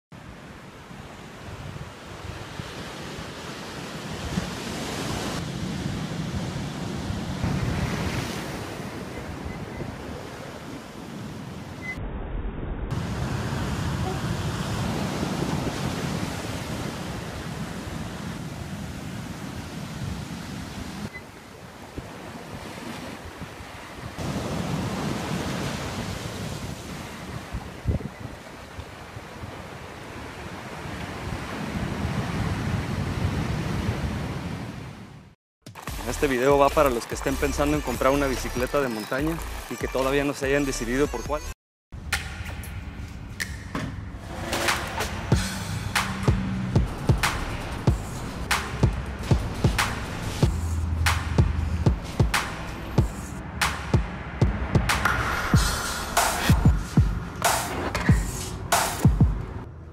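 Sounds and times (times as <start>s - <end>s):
wind buffeting microphone: 12.9s - 34.8s
surf breaking on rocks: 21.9s - 27.6s.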